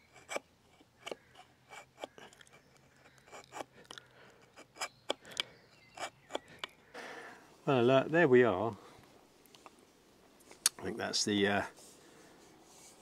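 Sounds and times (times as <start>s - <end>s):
knife carving wood: 0.0s - 6.8s.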